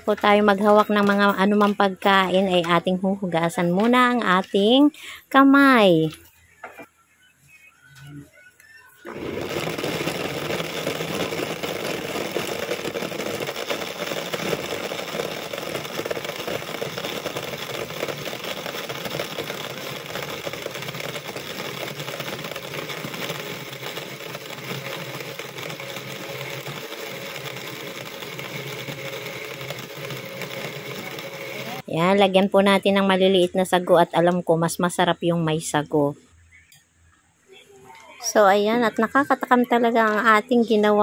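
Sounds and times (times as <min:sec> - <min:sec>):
blender motor whirring: 0:09.1 - 0:31.8.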